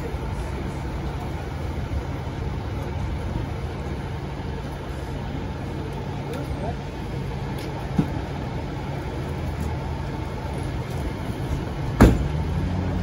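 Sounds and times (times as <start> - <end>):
vehicle engine idling: 0.0 - 13.0
loud sharp knock: 12.0 - 12.3.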